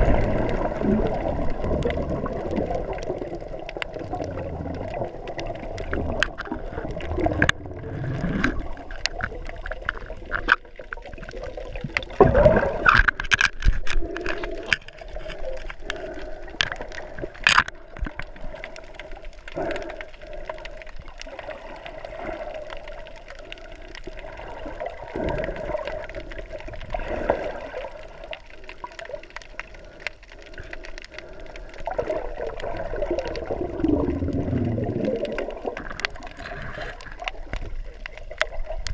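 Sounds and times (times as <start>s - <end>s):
sharp underwater clicks: 0.0s - 38.9s
underwater gurgling and sloshing: 0.0s - 38.9s.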